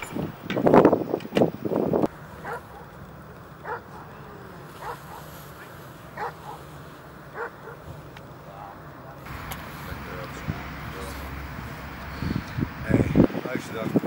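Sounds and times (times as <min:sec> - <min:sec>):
low steady hum: 0:02.0 - 0:14.0
dog barking faintly: 0:03.6 - 0:06.7, 0:07.3 - 0:07.9.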